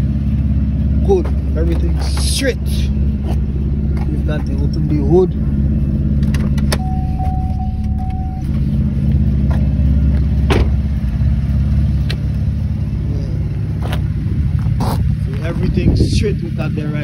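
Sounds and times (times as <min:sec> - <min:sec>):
car engine idling: 0:00.0 - 0:17.0
brief steady tone: 0:06.8 - 0:08.7.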